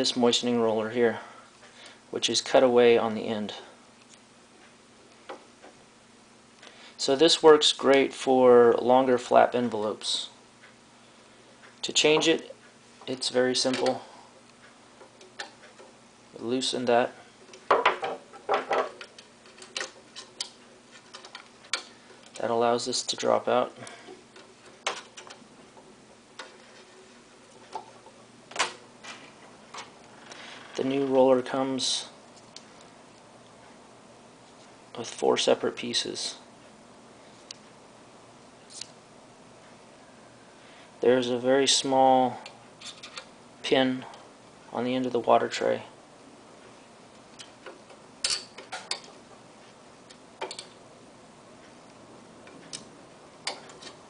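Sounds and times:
metal parts clicking and knocking: 0:17.5 - 0:22.4, 0:47.6 - 0:49.2.

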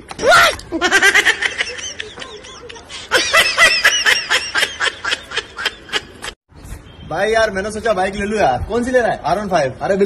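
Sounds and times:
high-pitched laughter: 0:00.7 - 0:06.4.

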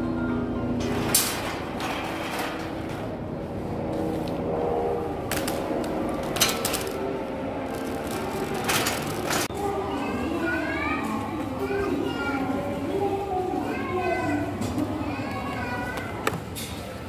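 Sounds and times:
shopping cart rattling and clanking: 0:00.8 - 0:03.3, 0:05.3 - 0:11.0.

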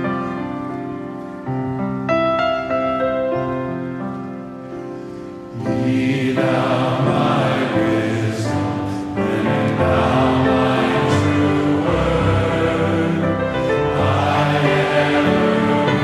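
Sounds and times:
held keyboard chords: 0:00.0 - 0:16.0
choir singing: 0:05.5 - 0:16.0.

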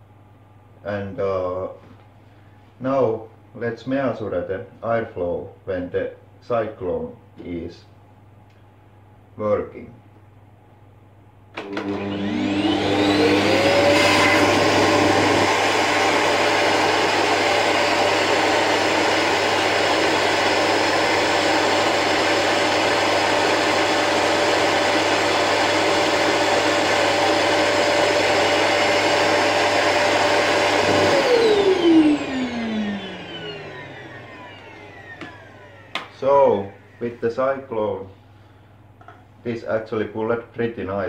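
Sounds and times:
vacuum cleaner motor whine: 0:11.6 - 0:37.6.

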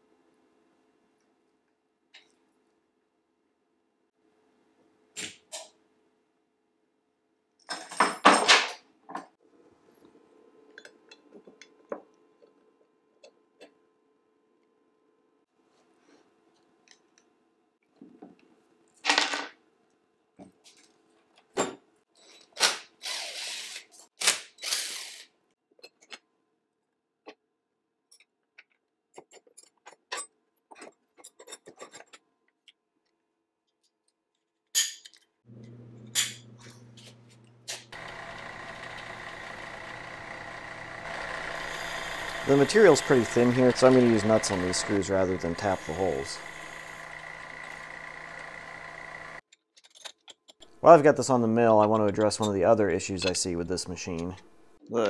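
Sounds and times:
tools clicking and scraping: 0:28.1 - 0:32.8, 0:49.4 - 0:50.8
milling machine motor hum: 0:37.9 - 0:49.4
drill bit cutting metal: 0:38.0 - 0:49.4.

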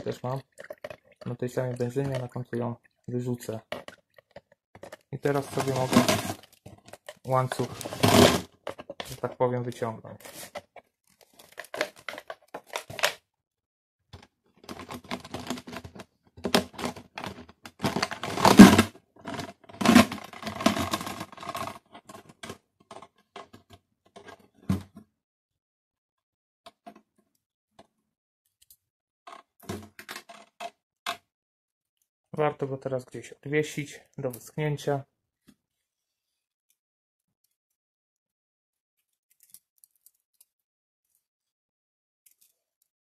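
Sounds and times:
chain clattering against plastic bottle: 0:03.6 - 0:09.2, 0:14.6 - 0:23.0.

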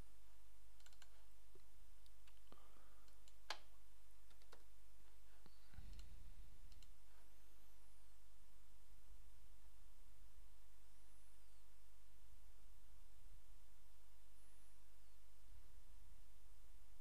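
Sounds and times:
steady low hum: 0:00.0 - 0:17.0
keyboard keystrokes: 0:00.8 - 0:02.4, 0:04.3 - 0:04.7
computer mouse clicks: 0:00.8 - 0:04.7, 0:05.3 - 0:07.3.

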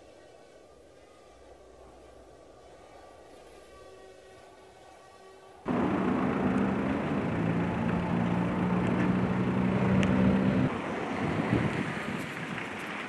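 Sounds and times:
vehicle engine running: 0:05.7 - 0:10.7
broad rushing noise: 0:05.7 - 0:13.0.

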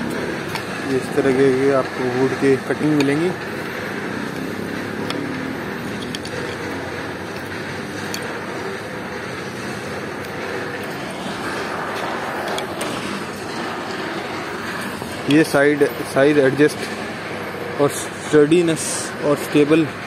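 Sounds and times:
steady background noise: 0:00.0 - 0:20.0.

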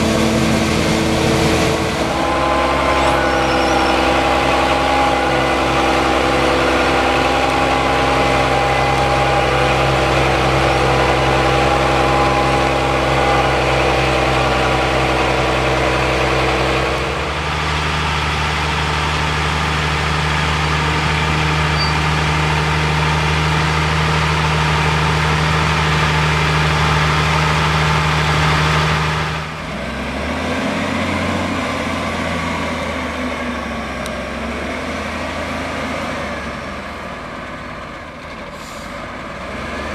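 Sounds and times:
heavy diesel engines running: 0:00.0 - 0:39.9.

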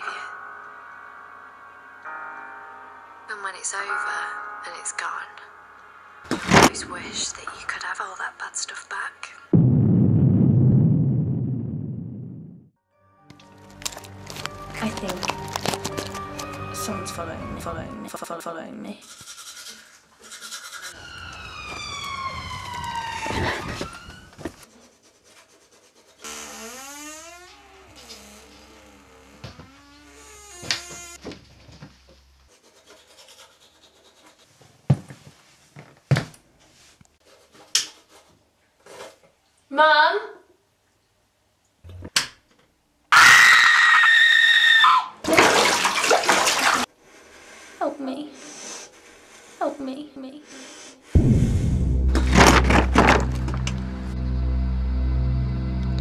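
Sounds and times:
loud hit: 0:09.6 - 0:12.6, 0:51.2 - 0:53.7
low rumble: 0:09.6 - 0:12.8, 0:51.2 - 0:56.0
falling electronic tone: 0:21.0 - 0:24.1
rising tone: 0:21.0 - 0:24.2
loud shrill scream: 0:43.1 - 0:45.2
short thump: 0:51.2 - 0:53.8.

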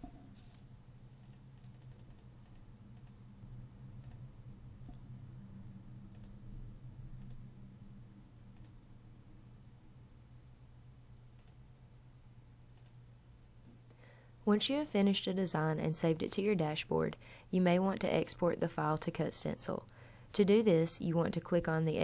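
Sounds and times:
low electrical hum: 0:00.0 - 0:22.0
computer mouse clicks: 0:01.2 - 0:03.2, 0:04.0 - 0:04.2, 0:06.1 - 0:06.4, 0:07.2 - 0:07.4, 0:08.6 - 0:08.8, 0:11.3 - 0:11.6, 0:12.7 - 0:13.0.

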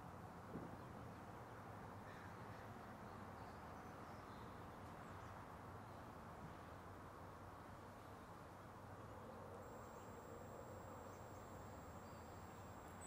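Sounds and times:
faint steady hiss and hum: 0:03.1 - 0:13.0.

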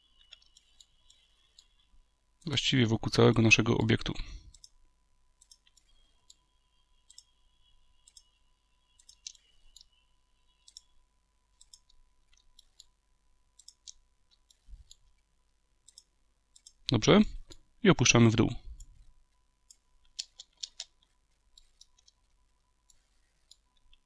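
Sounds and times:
faint steady tone: 0:00.0 - 0:20.2
faint mouse clicks: 0:08.9 - 0:09.9, 0:10.6 - 0:10.9.

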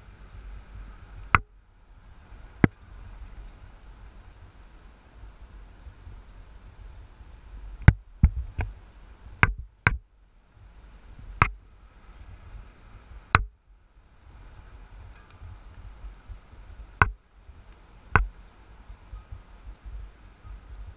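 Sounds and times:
sharp knocks: 0:13.3 - 0:13.5.

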